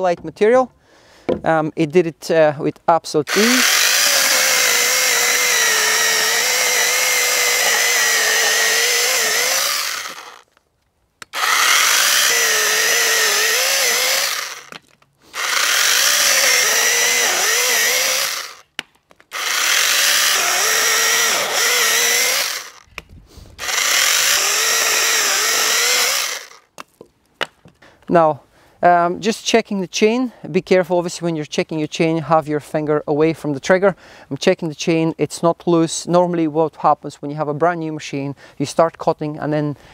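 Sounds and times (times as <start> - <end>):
electric chainsaw cutting log: 3.3 - 10.5, 11.2 - 18.7, 19.3 - 22.9, 23.6 - 26.7.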